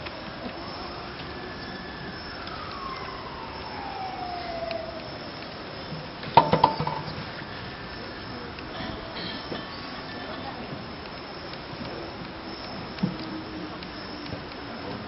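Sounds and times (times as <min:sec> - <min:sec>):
siren wailing: 0:00.0 - 0:08.4.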